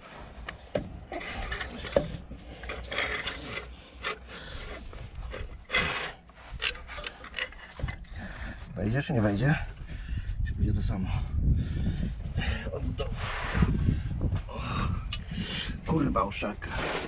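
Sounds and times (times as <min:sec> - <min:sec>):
metal cylinder scraping and rubbing: 0:01.1 - 0:08.8.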